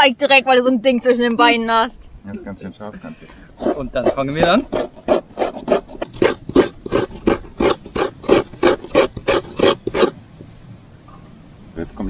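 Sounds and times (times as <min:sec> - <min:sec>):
coconut scraping on grater blade: 0:03.6 - 0:10.2.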